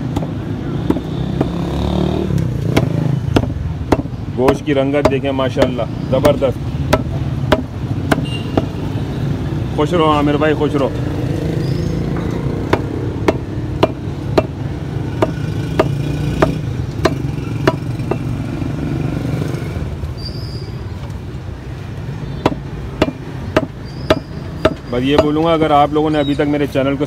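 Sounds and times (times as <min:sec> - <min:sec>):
cleaver chopping on wood: 0:00.0 - 0:08.8, 0:12.2 - 0:18.3, 0:22.4 - 0:25.5
road traffic rumble: 0:00.0 - 0:27.0.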